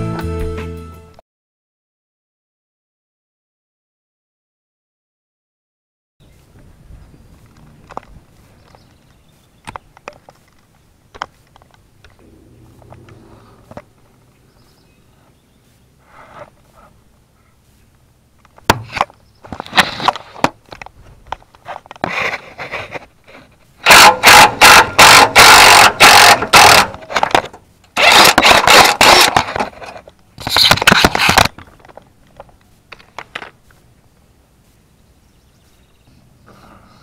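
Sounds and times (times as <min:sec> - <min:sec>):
impact wrench hammering bolts: 0:23.8 - 0:29.8
short clatters and clicks: 0:24.2 - 0:33.6.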